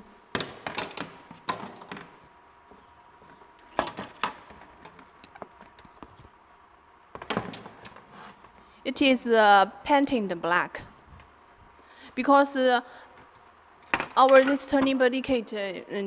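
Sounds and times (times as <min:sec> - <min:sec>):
parts knocking and tapping: 0:00.3 - 0:02.8.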